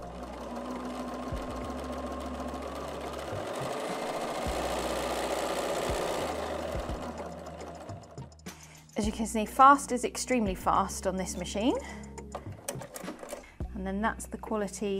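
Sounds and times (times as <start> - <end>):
sewing machine stitching: 0.0 - 8.3, 12.6 - 13.5.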